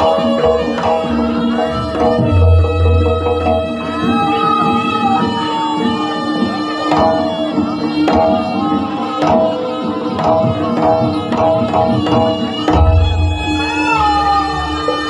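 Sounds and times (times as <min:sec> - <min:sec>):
ringing metallophone tones: 0:00.0 - 0:04.8
hand drums striking: 0:00.0 - 0:05.2, 0:06.8 - 0:15.0.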